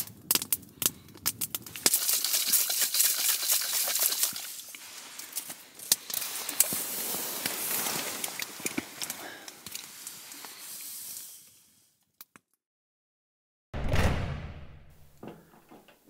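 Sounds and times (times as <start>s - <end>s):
wood stove crackling: 0.0s - 3.0s, 4.1s - 11.8s.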